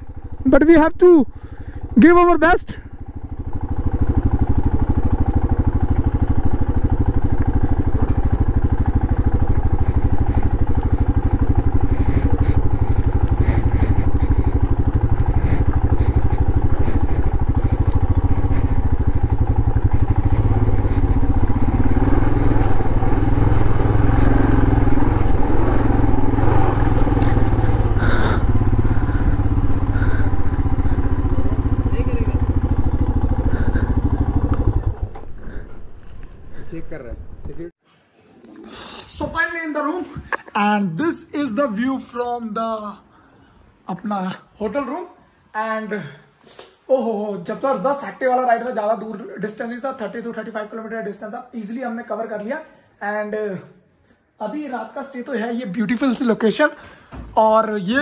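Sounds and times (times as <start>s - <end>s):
motorcycle engine running: 0.0s - 37.7s.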